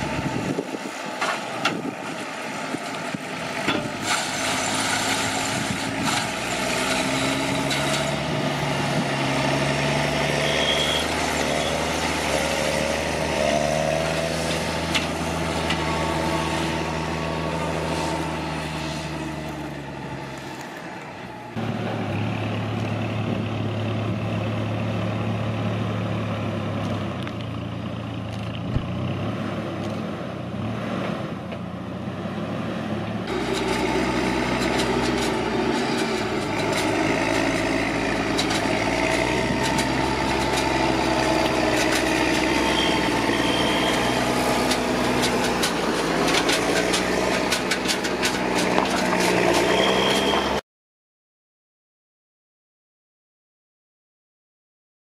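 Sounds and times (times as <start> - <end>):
diesel engine running: 0.0 - 50.6
tractor engine: 0.0 - 50.6
trailer rattling and clicking: 0.5 - 10.4, 11.0 - 18.5, 33.3 - 50.6.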